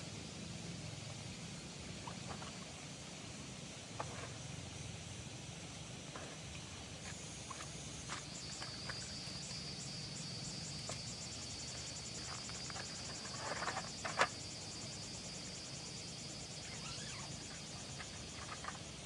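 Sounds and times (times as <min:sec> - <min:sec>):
insects chirping: 0:00.0 - 0:19.0
gear rustling on gravel: 0:07.0 - 0:09.6, 0:10.8 - 0:14.5, 0:16.7 - 0:19.0.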